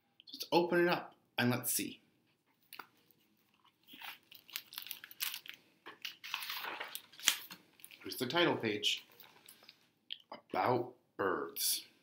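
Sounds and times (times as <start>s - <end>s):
book pages rustling: 2.4s - 8.2s, 9.0s - 9.9s.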